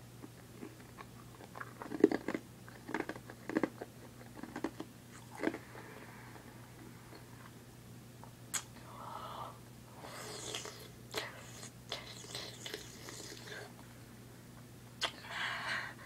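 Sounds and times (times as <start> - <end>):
sharp mouth clicks: 8.5 - 8.8.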